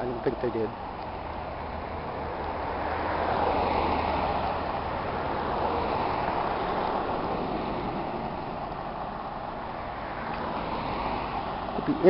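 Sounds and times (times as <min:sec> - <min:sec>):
cars driving past: 0:00.0 - 0:12.0.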